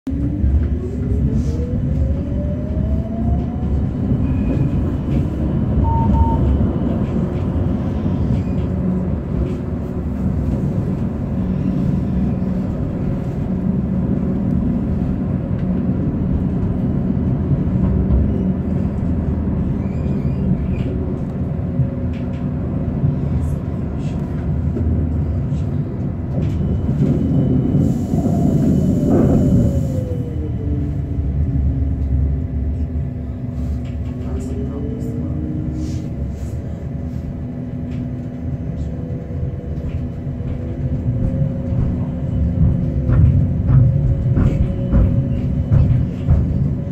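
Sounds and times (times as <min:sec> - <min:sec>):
tram wheels rumbling on rails: 0:00.1 - 0:46.9.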